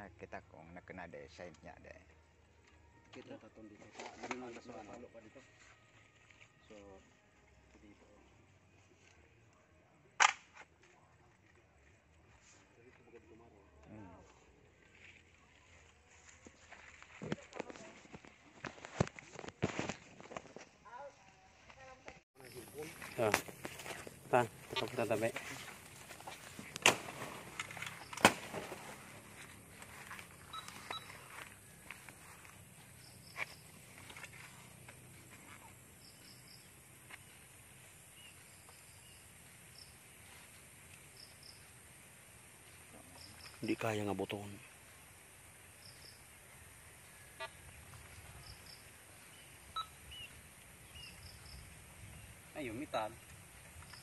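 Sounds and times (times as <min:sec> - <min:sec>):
metal detector beeps: 0:30.4 - 0:31.4, 0:49.7 - 0:50.3.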